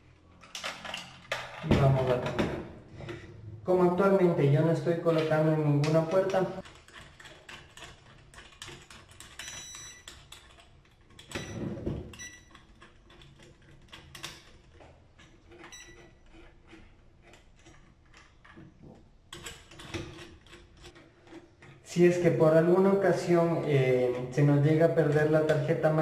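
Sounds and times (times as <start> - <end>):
clicks and scrapes of lock parts: 0.0 - 3.4, 4.9 - 22.3.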